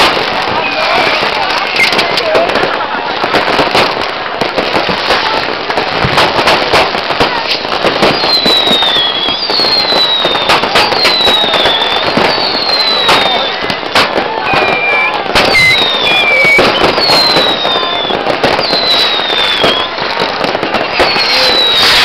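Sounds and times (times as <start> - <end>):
fireworks and firecrackers banging: 0.0 - 22.0
whistle falling in pitch: 14.5 - 19.9.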